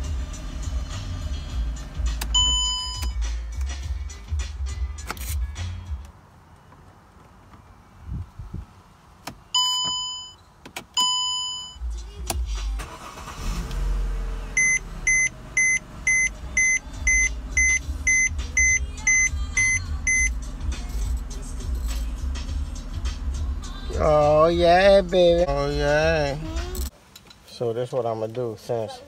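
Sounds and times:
car engine cranking and idling: 0:00.0 - 0:27.5
warning beeps: 0:02.3 - 0:03.2, 0:09.6 - 0:10.4, 0:11.0 - 0:11.8, 0:14.6 - 0:20.4.

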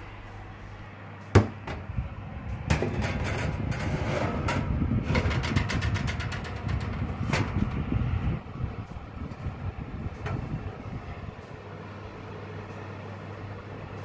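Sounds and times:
tray scraping on oven rack: 0:02.7 - 0:07.8.

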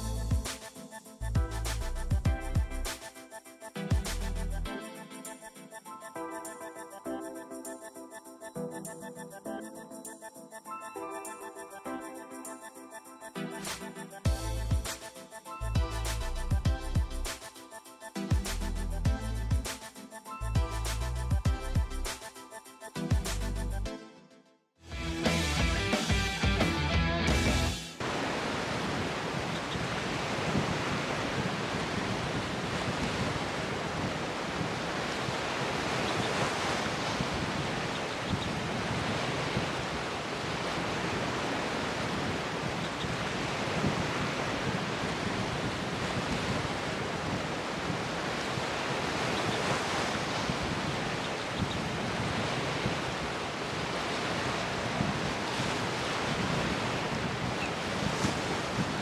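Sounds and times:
ocean surf breaking: 0:27.5 - 0:59.0.

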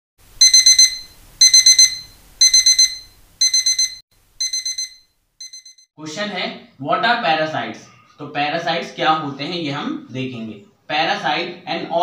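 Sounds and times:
rapid high electronic beeps: 0:00.4 - 0:05.8.

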